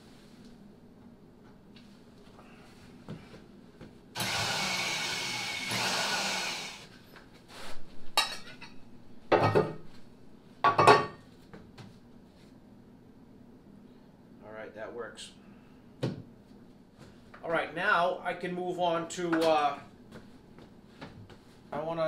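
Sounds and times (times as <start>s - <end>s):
drill with hole saw cutting: 4.2s - 6.9s.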